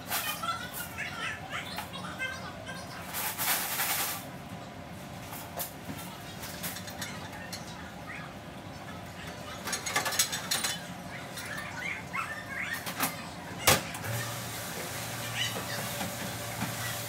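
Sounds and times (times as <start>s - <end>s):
dish machine humming: 0.0s - 17.0s
plates and dish racks clattering: 5.2s - 8.2s, 9.0s - 17.0s.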